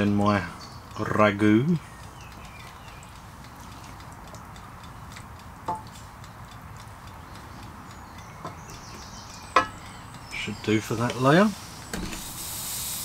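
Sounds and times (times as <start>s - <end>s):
spatula ticking in metal tin: 0.9s - 11.2s.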